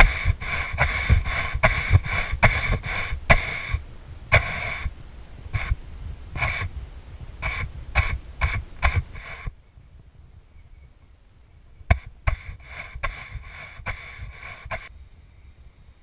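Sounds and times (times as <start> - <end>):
paintbrush scraping on wood: 0.0 - 4.9, 5.6 - 5.8, 6.4 - 6.7, 7.4 - 9.6, 11.9 - 14.9.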